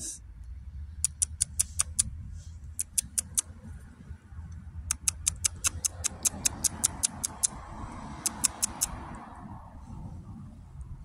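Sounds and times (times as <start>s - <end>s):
rapid sharp high clicks: 1.0s - 2.1s, 2.8s - 3.5s, 4.9s - 7.6s, 8.2s - 9.0s.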